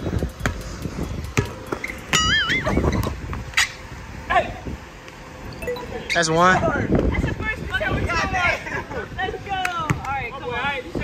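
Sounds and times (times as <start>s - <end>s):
basketball dribbling on hard court: 1.3s - 1.9s
short wavering high tone: 5.5s - 6.2s.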